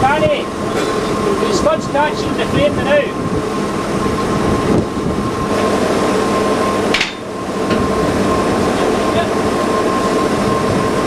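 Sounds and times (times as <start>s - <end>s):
crane engine running: 0.0s - 11.0s.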